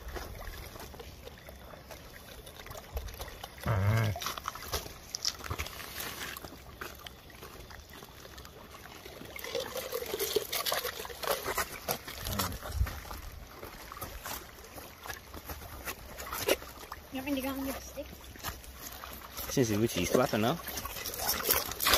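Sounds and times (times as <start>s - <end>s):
water trickling on rocks: 0.0s - 21.9s
small wet clicks: 0.1s - 9.3s.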